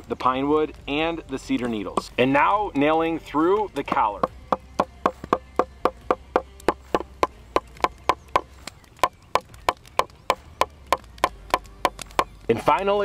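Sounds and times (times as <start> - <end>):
hatchet pounding nail into wood: 3.9 - 12.3.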